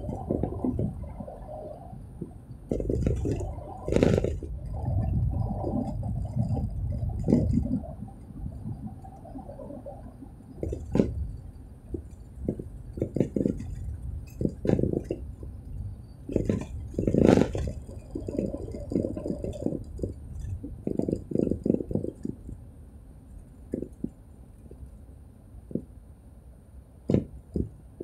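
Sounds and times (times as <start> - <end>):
car rumble from inside cabin: 0.0 - 22.7.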